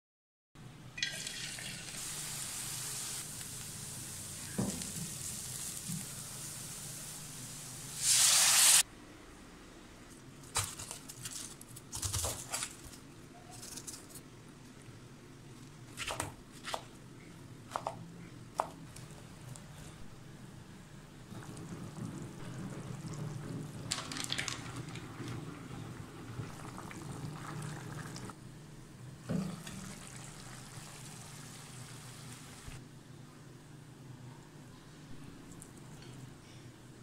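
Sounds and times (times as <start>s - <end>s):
sizzling in a pan: 1.2s - 8.9s, 29.6s - 32.8s.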